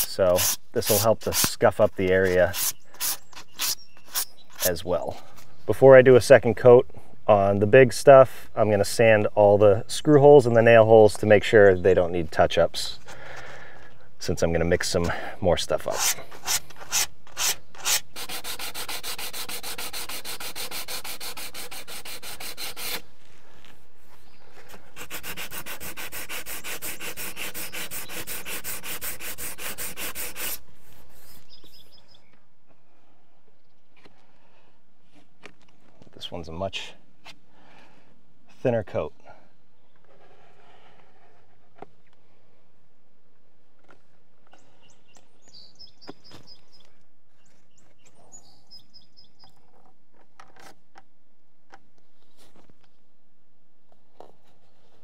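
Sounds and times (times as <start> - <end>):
sandpaper scrubbing by hand: 0.0 - 4.7, 15.9 - 23.0, 24.6 - 31.9
small bird chirping: 2.6 - 4.6, 31.2 - 32.4, 44.5 - 49.7.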